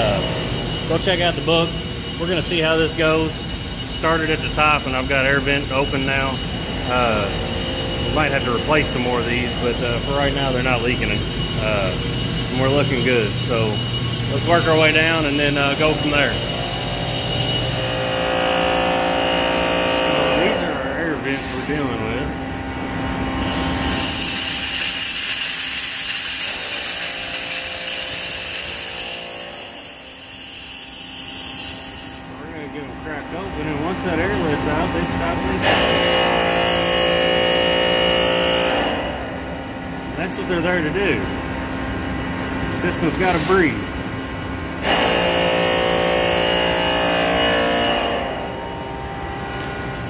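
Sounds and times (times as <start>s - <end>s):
air vent hissing and whistling: 0.0s - 50.0s
steam vent hissing: 23.4s - 32.7s.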